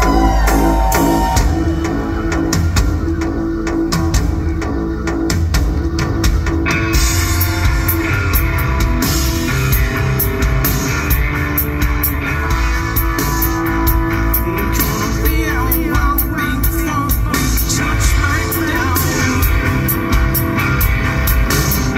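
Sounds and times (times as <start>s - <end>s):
distorted electric guitar: 0.0s - 21.9s
drum kit beat: 0.0s - 21.9s
person singing: 14.3s - 20.1s.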